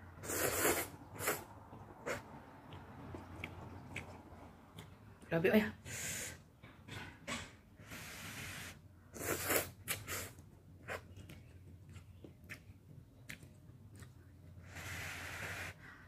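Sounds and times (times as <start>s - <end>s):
person slurping noodles: 0.2s - 1.4s, 7.9s - 10.3s
wet chewing: 0.3s - 5.3s, 9.2s - 14.6s.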